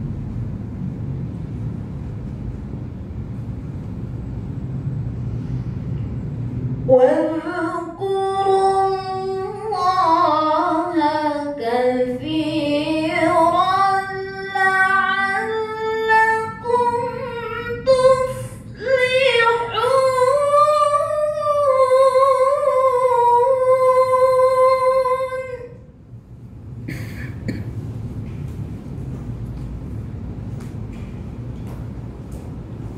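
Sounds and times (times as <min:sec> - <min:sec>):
woman chanting recitation: 0:06.9 - 0:25.8.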